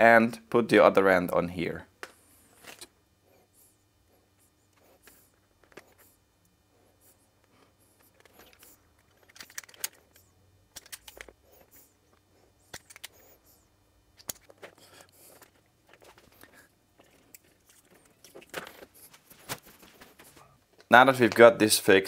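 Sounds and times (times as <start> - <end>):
clicks and rustles of wires: 2.0 - 3.0, 7.4 - 13.3, 14.2 - 21.5.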